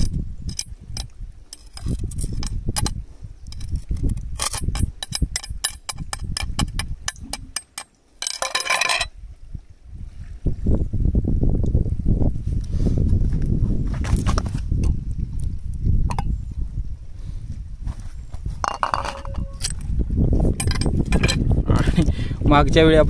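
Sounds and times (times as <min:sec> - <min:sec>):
blade scraping rock: 0:00.0 - 0:09.1
metal blade tapping rock: 0:00.0 - 0:09.1.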